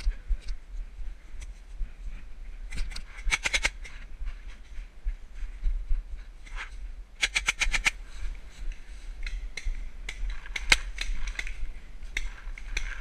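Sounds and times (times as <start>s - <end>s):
paintball markers firing: 7.2s - 8.0s, 9.3s - 13.0s.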